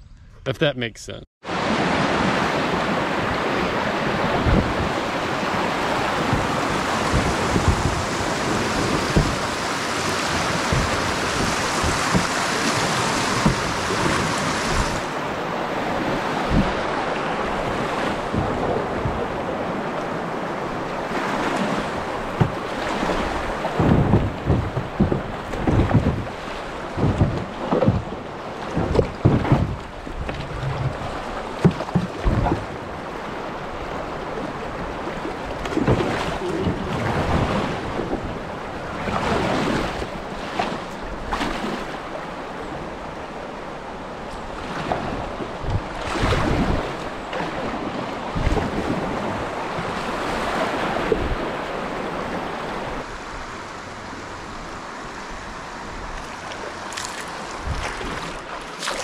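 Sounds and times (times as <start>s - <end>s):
water splashing around kayak: 1.4s - 59.0s
wind buffeting microphone: 2.1s - 41.4s, 44.0s - 53.1s, 57.4s - 58.5s
knocks and thumps: 6.3s - 9.6s, 10.4s - 15.0s, 22.3s - 22.6s, 23.8s - 31.0s, 31.6s - 32.7s.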